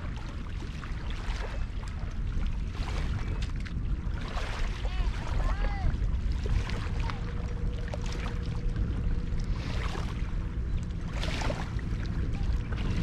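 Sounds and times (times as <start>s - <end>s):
small waves lapping: 0.0s - 13.0s
wind rumbling on microphone: 0.0s - 13.0s
water splash: 2.7s - 13.0s.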